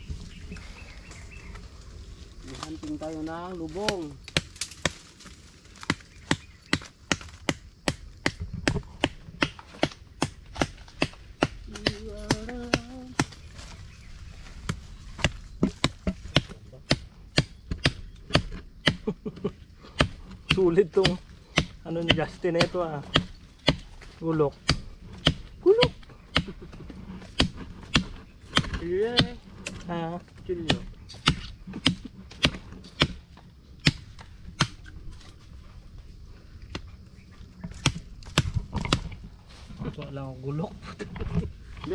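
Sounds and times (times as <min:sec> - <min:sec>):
knife chopping bamboo: 0:05.8 - 0:13.4, 0:14.6 - 0:19.1, 0:19.9 - 0:26.6, 0:27.2 - 0:29.9, 0:30.5 - 0:34.9.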